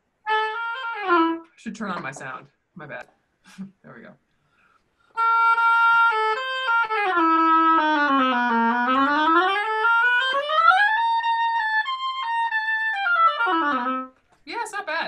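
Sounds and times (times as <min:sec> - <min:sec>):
oboe playing notes: 0:00.2 - 0:01.5, 0:05.2 - 0:14.2.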